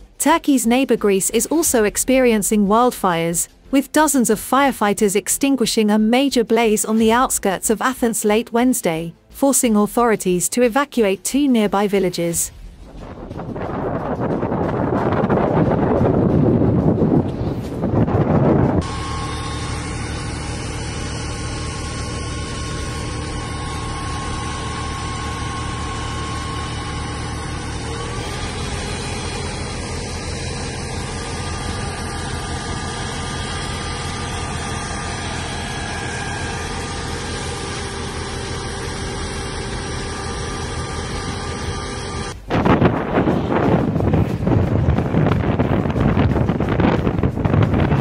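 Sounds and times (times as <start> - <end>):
wind buffeting microphone: 12.6 - 18.9, 42.4 - 48.0
truck engine idling: 12.6 - 48.0.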